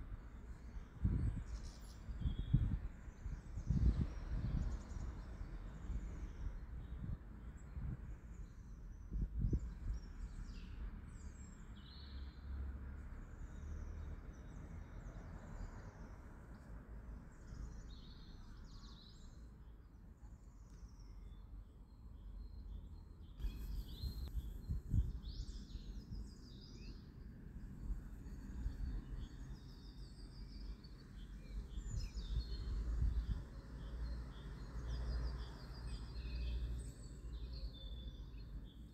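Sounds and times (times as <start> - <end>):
birds chirping and singing: 23.4 - 27.0.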